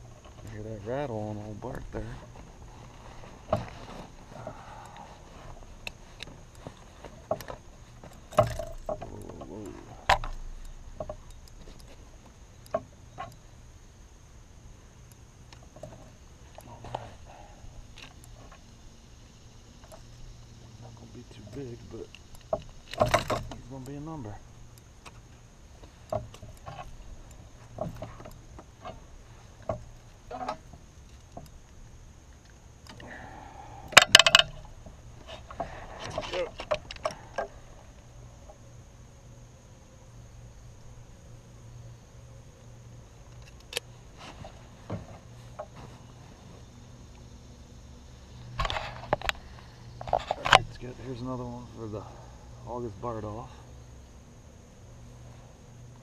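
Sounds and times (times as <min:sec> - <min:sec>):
fish flopping and tapping: 0:04.9 - 0:09.4, 0:25.8 - 0:29.0.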